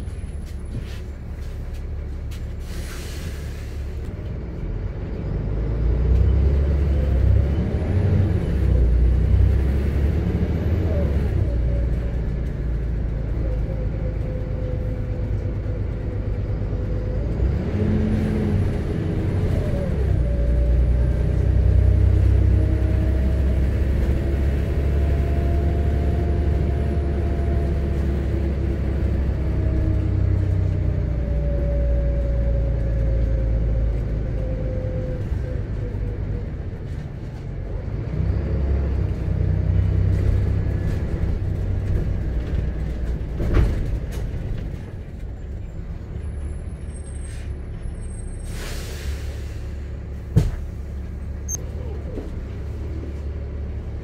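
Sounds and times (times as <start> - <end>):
bus diesel engine rumble and whine: 0.0 - 54.0.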